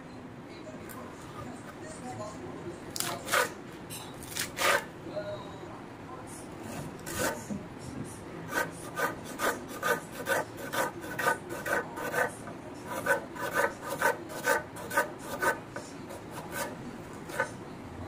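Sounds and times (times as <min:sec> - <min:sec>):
knife slicing onion: 0:03.0 - 0:03.6, 0:04.2 - 0:04.9, 0:06.7 - 0:07.5, 0:08.5 - 0:17.6.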